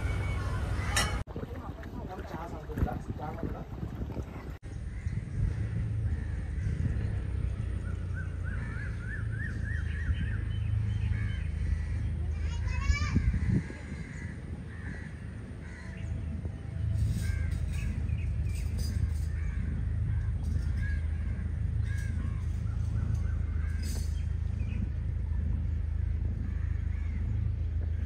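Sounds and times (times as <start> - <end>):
birds calling: 4.4 - 28.0
steady low hum: 13.2 - 28.0.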